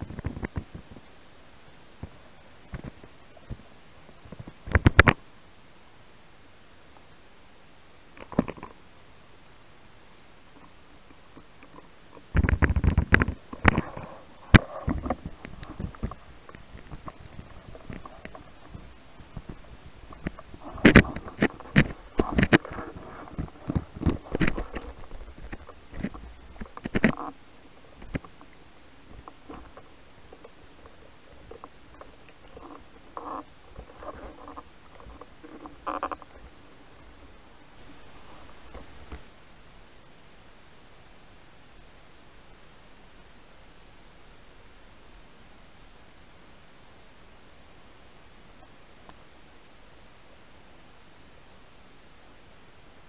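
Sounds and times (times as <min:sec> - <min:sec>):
underwater knocks and rumbles: 0:11.3 - 0:37.2
bubbly gurgles: 0:12.2 - 0:37.0.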